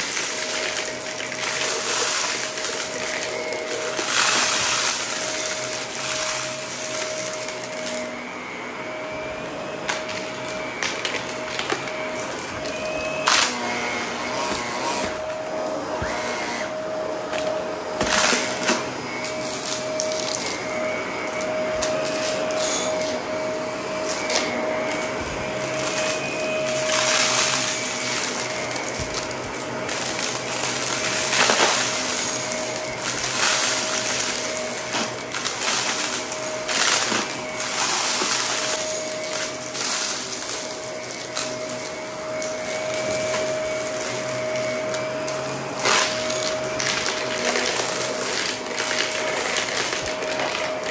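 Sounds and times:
debris crackling and rattling in vacuum: 0.0 - 8.2, 9.8 - 13.6, 17.3 - 23.1, 24.1 - 50.9
vacuum motor whine: 0.0 - 50.9.

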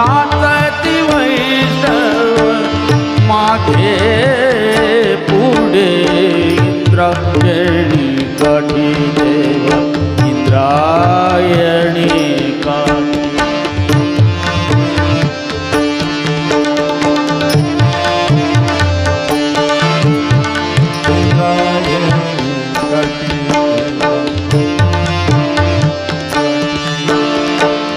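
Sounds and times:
man singing ornamented phrases: 0.0 - 14.6, 19.7 - 25.3
harmonium notes: 0.0 - 27.9
tabla strokes: 0.0 - 27.9.

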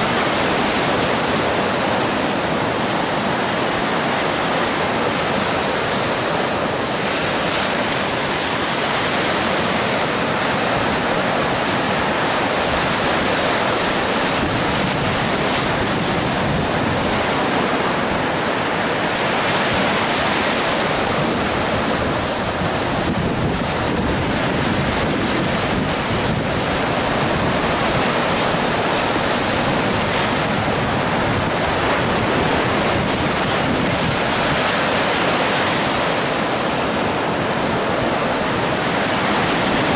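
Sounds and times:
surf washing up a sandy beach: 0.0 - 39.9
wind buffeting microphone: 0.0 - 39.9.

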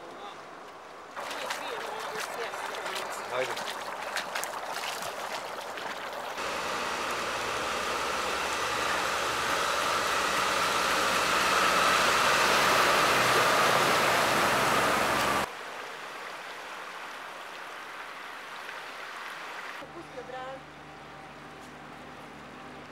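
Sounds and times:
floodwater rushing: 0.0 - 19.8
water splashing: 0.0 - 19.8
fire engine running: 6.4 - 15.5, 19.8 - 22.9.

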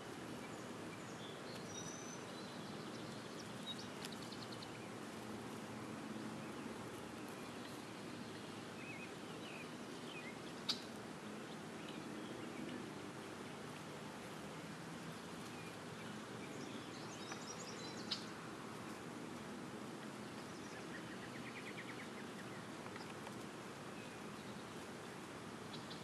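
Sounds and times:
open-air ambience hiss: 0.0 - 26.0.

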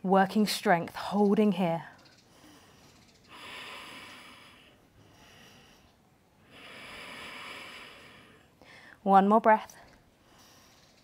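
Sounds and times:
woman breathing: 2.2 - 9.0, 10.1 - 11.0.

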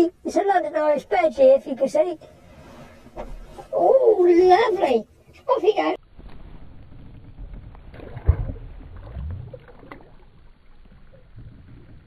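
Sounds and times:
fish splashing into water: 6.8 - 12.0
water lapping against boat hull: 6.9 - 12.0.

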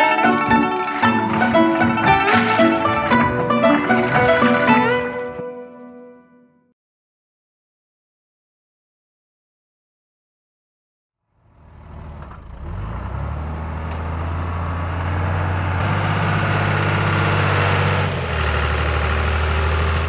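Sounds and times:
road sweeper truck engine running: 0.0 - 5.0, 14.0 - 20.0.

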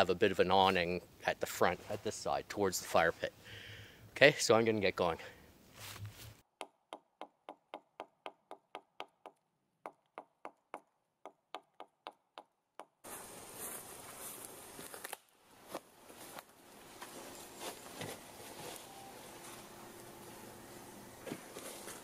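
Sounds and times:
faint outdoor hiss: 0.0 - 6.4, 13.0 - 22.0.

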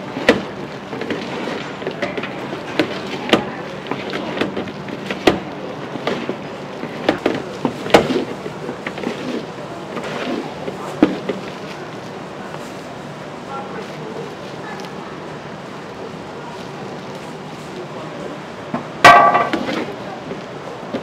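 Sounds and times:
wooden paddle knocking metal pan: 19.0 - 19.6.

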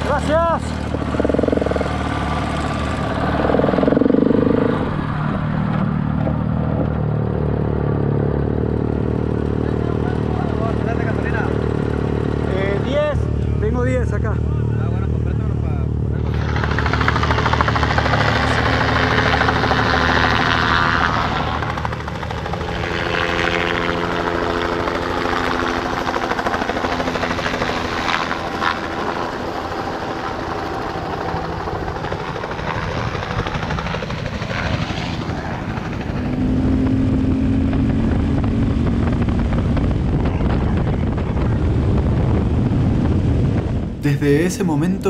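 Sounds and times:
motorcycle engine on dirt track: 0.0 - 44.0
helicopter flying low overhead: 0.0 - 45.0.

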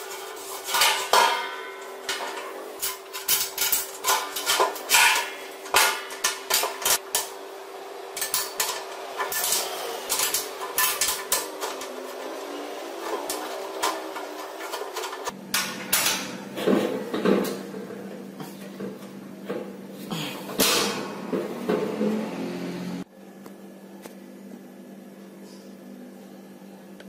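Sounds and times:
metal clanks and clinks: 0.0 - 7.4, 8.2 - 12.4.

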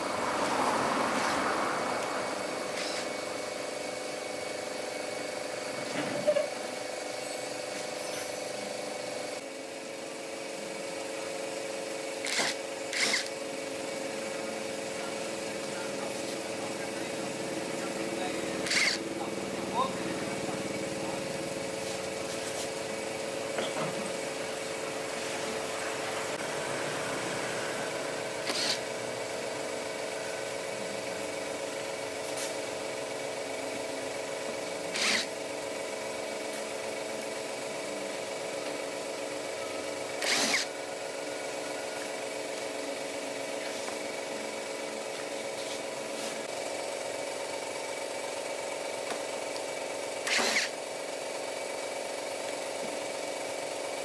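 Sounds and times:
power tool running: 0.0 - 54.0.

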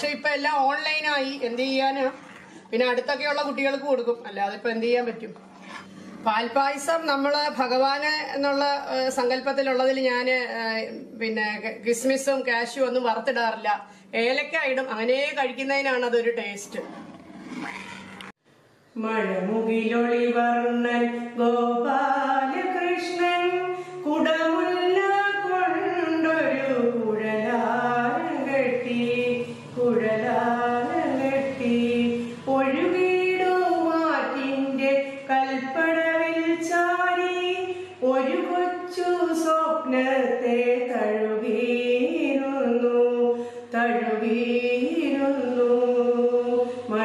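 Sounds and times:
woman singing: 19.0 - 47.0.

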